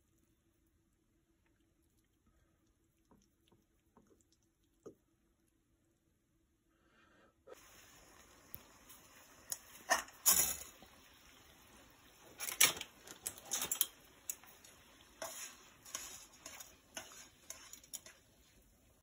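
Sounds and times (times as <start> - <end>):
faint steady hiss: 0.0 - 19.0
dry spaghetti rattling against pot: 9.5 - 11.0, 12.1 - 18.6.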